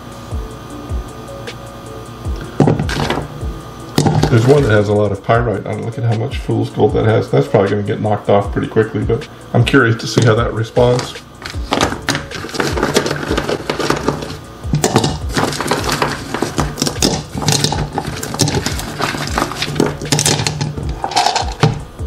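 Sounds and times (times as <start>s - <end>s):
steady low hum: 0.0s - 22.0s
stones clattering into a barrel: 10.9s - 21.9s.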